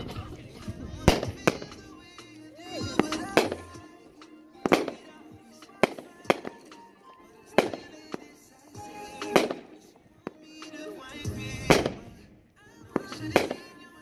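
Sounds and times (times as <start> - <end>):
fireworks bangs: 0.0 - 3.9, 4.6 - 6.9, 7.5 - 12.2, 12.9 - 13.9
background music: 0.0 - 14.0.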